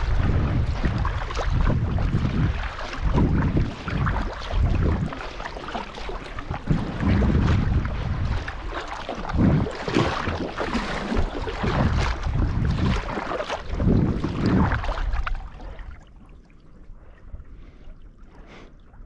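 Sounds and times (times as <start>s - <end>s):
wind buffeting microphone: 0.0s - 16.0s
paddle blades splashing in water: 0.0s - 16.5s.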